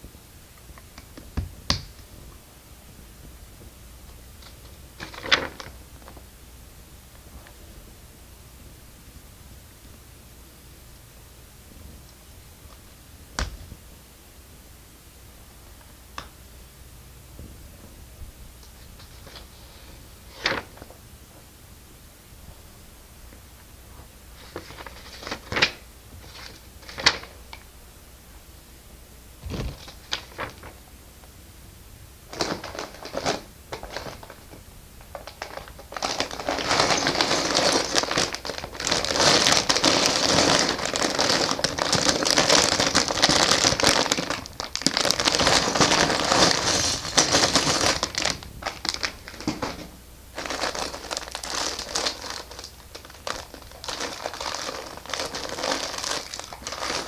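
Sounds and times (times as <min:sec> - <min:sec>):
plastic bag crinkling: 0:04.4 - 0:06.2, 0:24.4 - 0:27.4, 0:29.4 - 0:30.8, 0:32.3 - 0:57.0.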